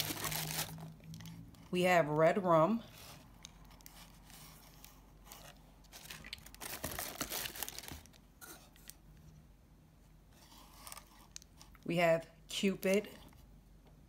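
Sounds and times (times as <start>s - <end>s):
tissue paper crinkling: 0.0s - 0.9s, 3.0s - 8.2s.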